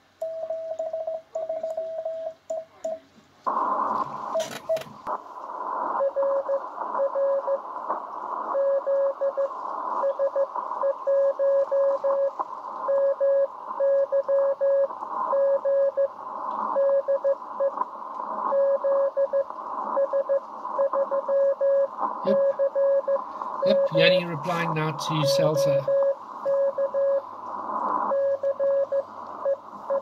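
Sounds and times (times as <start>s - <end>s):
radio band noise hiss: 3.4s - 30.0s
morse code tone: 20.8s - 27.2s.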